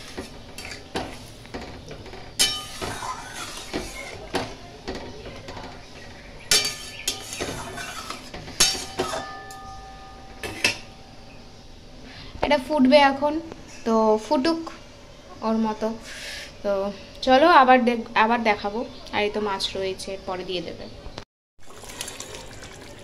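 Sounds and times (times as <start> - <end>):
spatula knocking and scraping pan: 0.0 - 5.8, 6.5 - 9.6
metal pan ringing: 2.4 - 2.8, 6.5 - 11.3.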